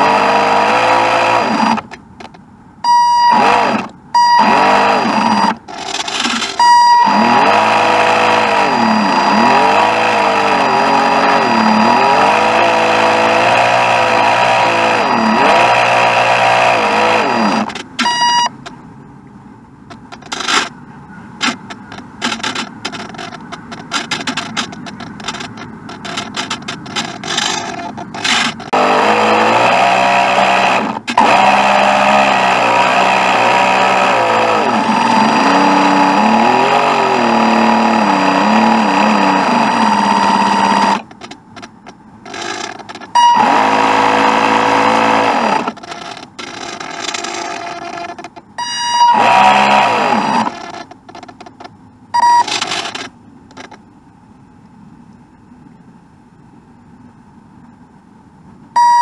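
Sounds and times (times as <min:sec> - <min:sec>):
small electric motor whining: 0:00.0 - 0:02.3, 0:03.2 - 0:18.7, 0:21.4 - 0:41.4, 0:42.2 - 0:51.4
scratchy crackling and clicks: 0:05.5 - 0:06.6, 0:19.9 - 0:20.7, 0:21.4 - 0:28.8, 0:40.4 - 0:48.5, 0:49.2 - 0:53.8.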